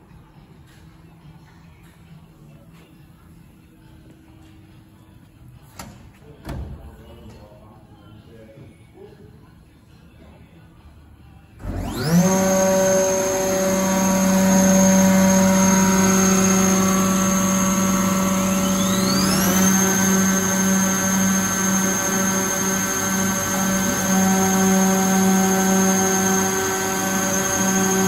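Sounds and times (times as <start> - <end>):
planer-moulder motors whining: 11.6 - 28.0.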